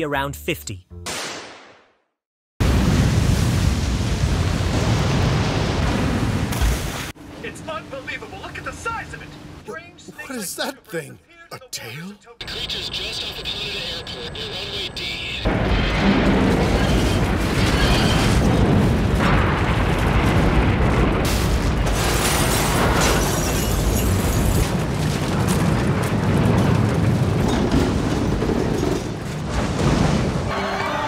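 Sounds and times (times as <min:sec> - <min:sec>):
heavy continuous rumble: 0:15.5 - 0:22.8
crashing and grinding debris: 0:15.5 - 0:30.5.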